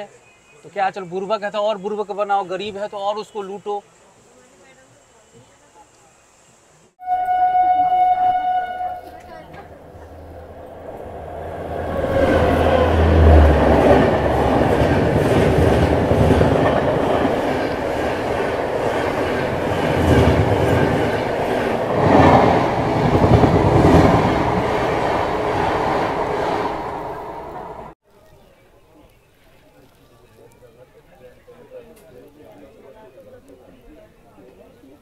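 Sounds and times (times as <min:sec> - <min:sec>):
passenger train passing: 0:07.0 - 0:28.0
train wheels clattering: 0:09.0 - 0:27.8.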